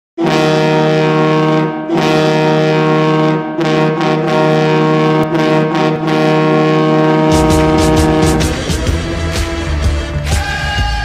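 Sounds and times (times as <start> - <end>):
air horn blasts: 0.2 - 11.0.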